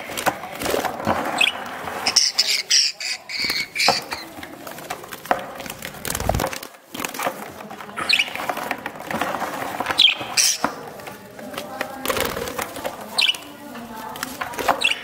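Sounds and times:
claws scraping on plastic: 0.0s - 15.0s
wings rustling: 0.5s - 15.0s
budgerigar chirps: 2.1s - 4.2s.

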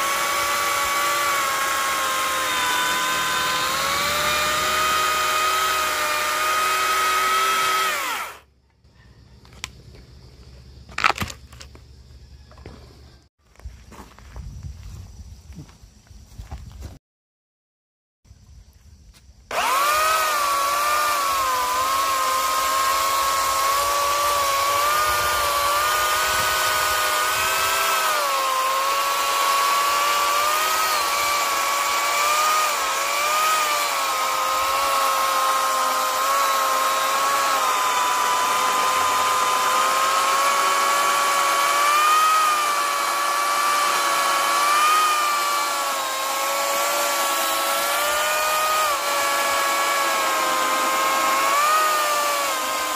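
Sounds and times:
electric chainsaw cutting log: 0.0s - 8.4s, 19.5s - 52.9s.

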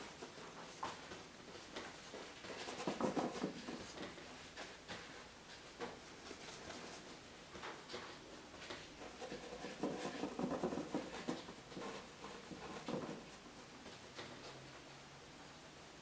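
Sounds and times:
bristle brush scrubbing on canvas: 0.0s - 7.3s, 8.8s - 13.8s.

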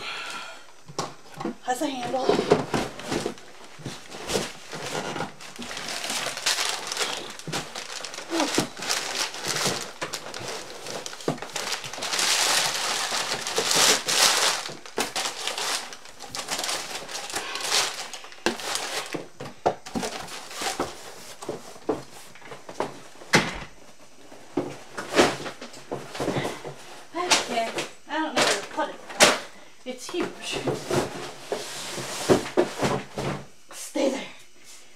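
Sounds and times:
packing paper crumpling: 2.8s - 21.4s.

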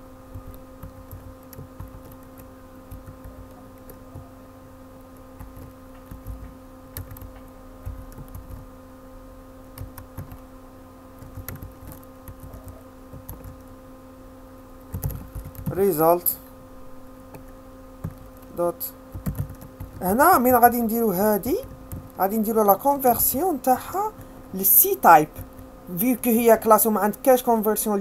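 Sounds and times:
steady hum: 0.0s - 28.0s
keyboard typing: 0.3s - 4.4s, 5.1s - 8.7s, 9.7s - 10.4s, 11.2s - 13.7s, 14.9s - 15.9s, 19.1s - 20.6s.

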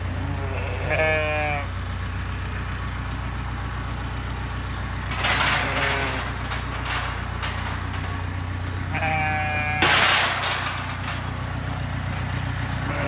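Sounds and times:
sheep bleating: 0.0s - 1.7s, 5.4s - 6.4s, 8.9s - 10.0s, 12.8s - 13.0s
engine idling drone: 0.0s - 13.0s.

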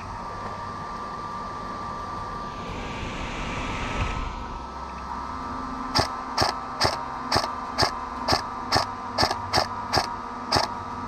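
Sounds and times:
faint hum: 0.0s - 11.0s
airsoft gun shots: 6.0s - 10.7s.

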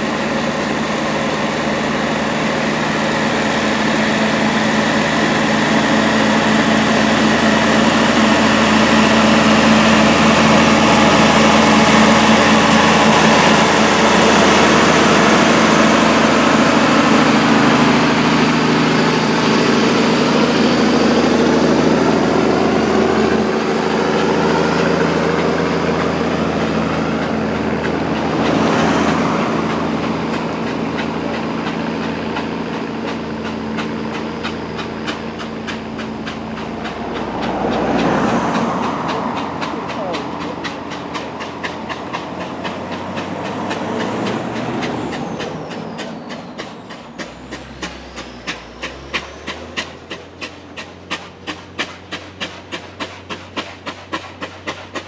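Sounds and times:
car passing quickly: 0.0s - 33.2s, 34.0s - 54.0s
truck engine passing by: 0.0s - 55.0s.

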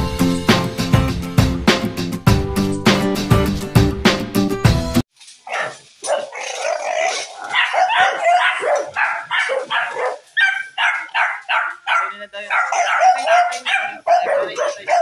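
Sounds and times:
dog barking and yipping: 5.4s - 15.0s.

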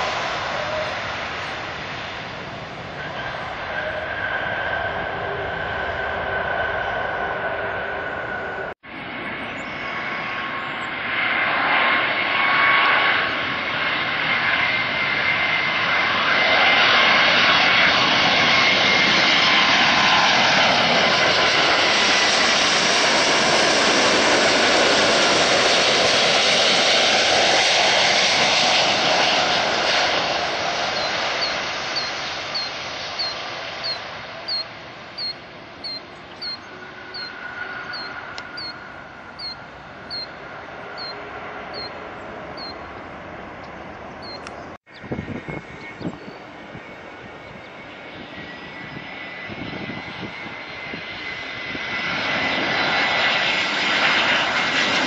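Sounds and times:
jet engines whining: 0.0s - 55.0s
bird chirping: 31.0s - 46.6s.

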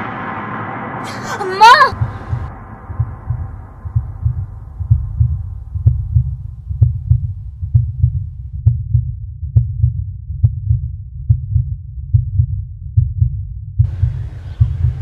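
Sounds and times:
heartbeat thumps: 1.9s - 15.0s.

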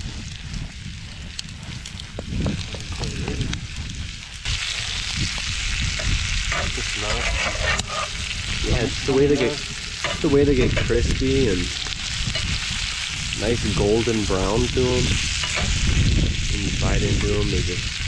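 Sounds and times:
potatoes sizzling in skillet: 1.2s - 18.0s
metal spatula scraping: 6.5s - 8.3s.

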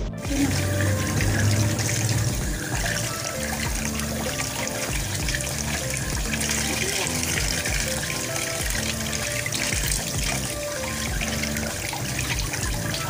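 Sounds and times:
background music: 0.0s - 13.0s
tap water running and splashing: 0.1s - 13.0s.

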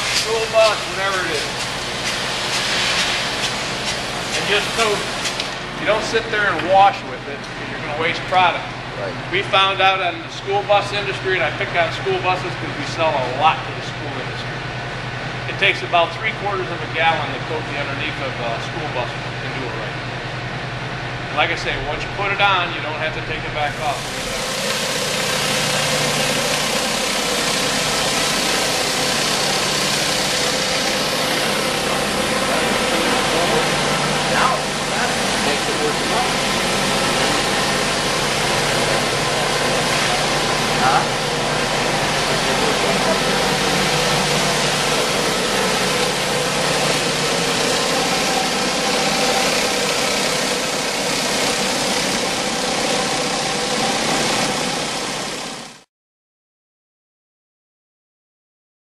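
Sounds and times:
spray hiss on wet floor: 0.0s - 5.4s
hissing water jets: 0.0s - 7.0s, 23.6s - 55.1s
pressure washer hum: 0.0s - 55.8s.

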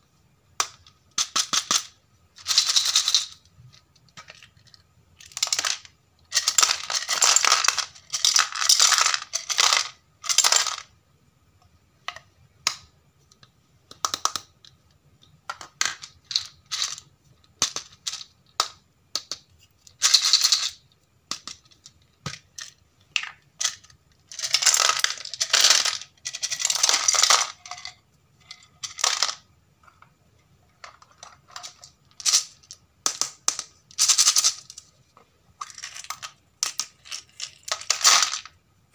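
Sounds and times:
small plastic pieces clicking: 0.6s - 11.0s, 12.1s - 28.0s, 28.6s - 30.1s, 30.8s - 34.9s, 35.6s - 38.6s
pieces rattling in plastic container: 2.4s - 3.4s, 4.2s - 10.9s, 19.9s - 29.4s, 30.8s - 34.8s, 35.6s - 38.5s.

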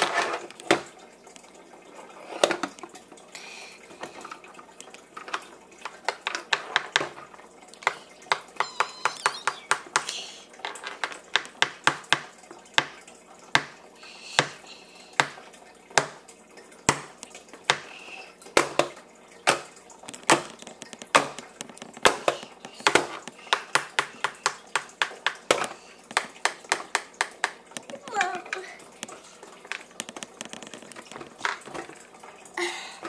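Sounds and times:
plastic toys knocking on tray: 7.8s - 10.1s, 10.7s - 13.8s, 20.2s - 28.0s.

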